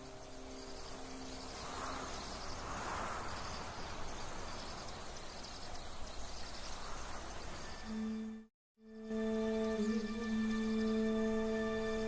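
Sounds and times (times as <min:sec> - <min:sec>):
background hiss: 0:00.0 - 0:08.2
insects chirping: 0:00.0 - 0:08.3.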